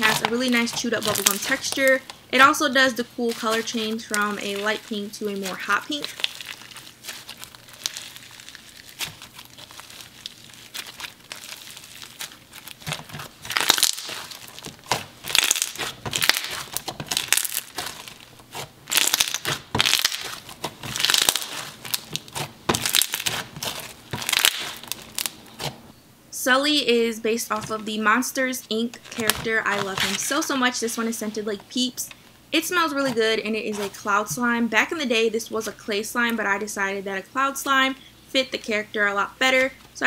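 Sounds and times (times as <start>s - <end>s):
slime crackling and popping: 0.0s - 2.5s, 3.2s - 25.7s.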